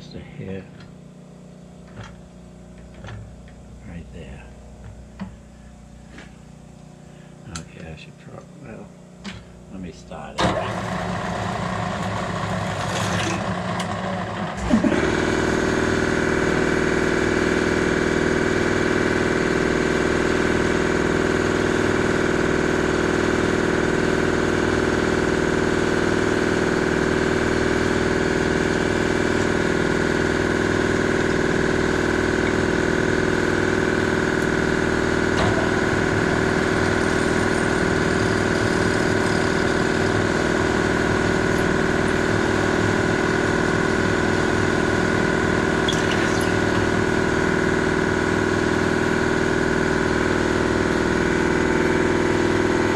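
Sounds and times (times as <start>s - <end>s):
machine motor humming: 0.0s - 52.9s.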